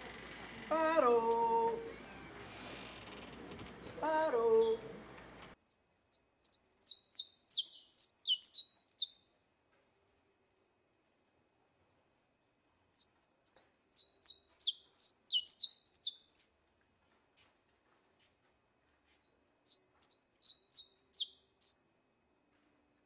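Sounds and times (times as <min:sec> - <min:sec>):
songbird singing: 0:00.0 - 0:09.3, 0:13.0 - 0:16.6, 0:19.2 - 0:22.1.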